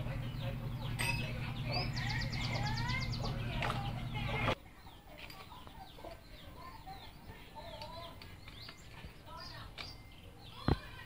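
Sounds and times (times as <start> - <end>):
steady low hum: 0.0 - 4.6
chickens clucking: 0.0 - 9.5.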